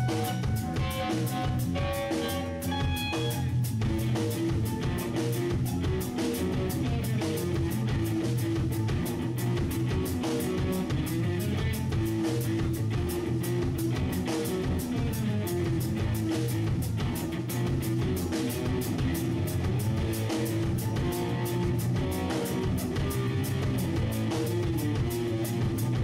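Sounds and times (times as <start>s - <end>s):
drum kit beat: 0.0s - 26.0s
electric guitar: 0.0s - 26.0s.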